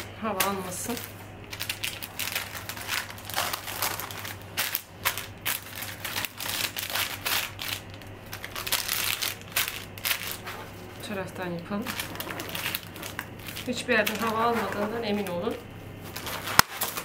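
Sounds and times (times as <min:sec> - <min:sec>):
paper and cling film crinkling: 0:00.0 - 0:17.0.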